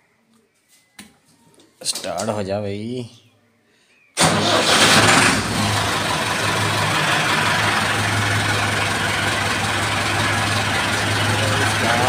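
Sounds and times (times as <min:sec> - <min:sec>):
tractor diesel engine starting: 0:04.2 - 0:12.0.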